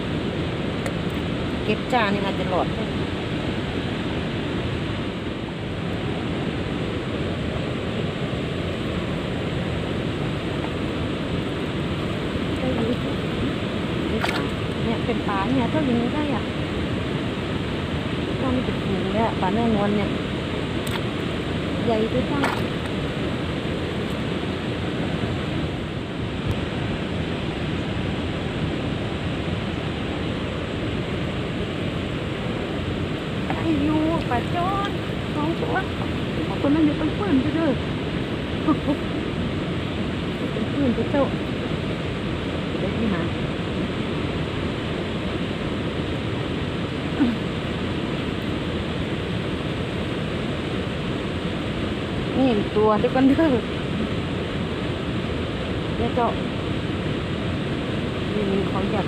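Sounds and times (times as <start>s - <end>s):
water rushing over a weir: 0.0s - 59.0s.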